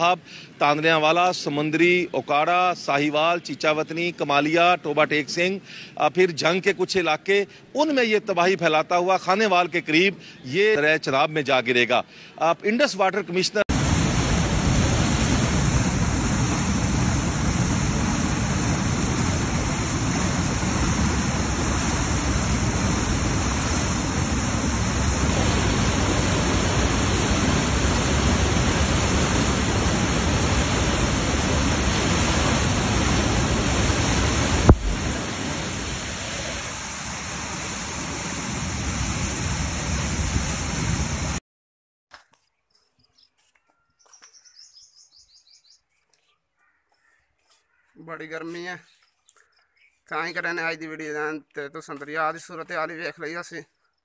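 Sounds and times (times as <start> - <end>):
flood water rushing: 13.7 - 41.4.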